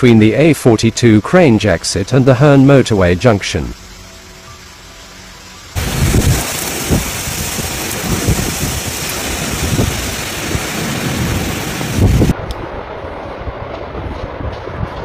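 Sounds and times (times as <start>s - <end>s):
heavy rain: 0.0s - 15.0s
strong wind gusts: 5.8s - 15.0s.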